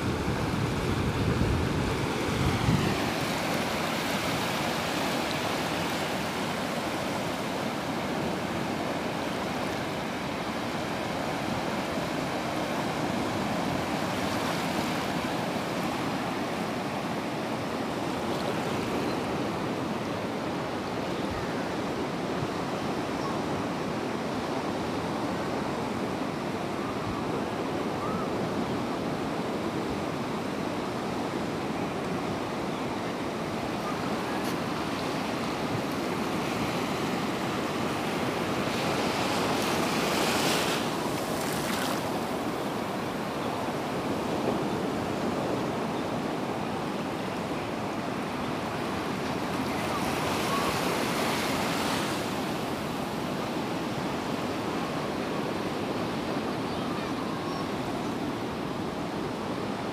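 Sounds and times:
surf waves washing on beach: 0.0s - 59.9s.

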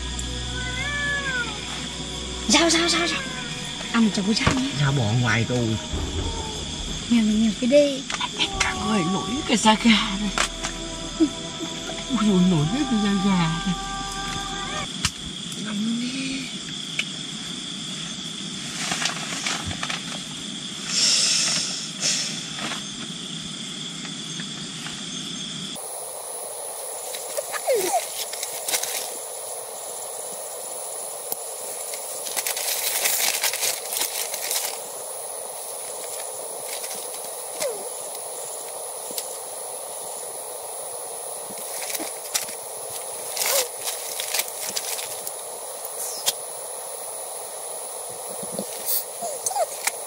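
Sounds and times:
hissing night background: 0.0s - 50.0s
rustles on a plastic tarp: 18.5s - 20.3s, 27.6s - 29.2s, 32.2s - 34.9s, 41.6s - 45.4s.

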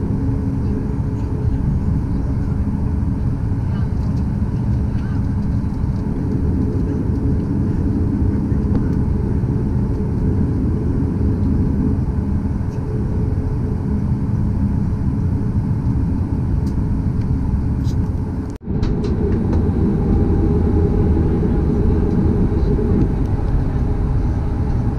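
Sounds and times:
jet engines idling: 0.0s - 24.9s.

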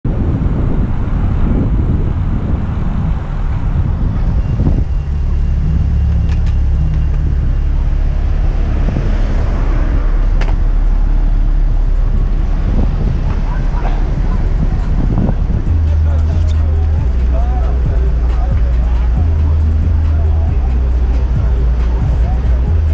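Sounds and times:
low engine hum: 0.0s - 22.9s
road traffic rumble: 0.0s - 22.9s.

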